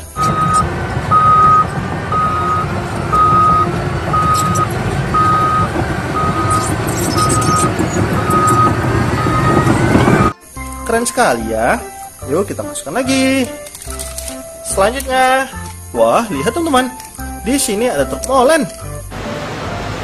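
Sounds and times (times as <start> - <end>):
backup alarm beeping: 0.0 - 10.3
bulldozer diesel engine running: 0.0 - 10.4, 19.1 - 20.0.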